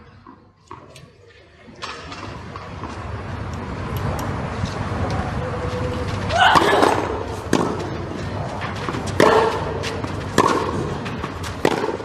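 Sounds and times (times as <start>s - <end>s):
racket striking tennis ball: 6.3s - 12.0s.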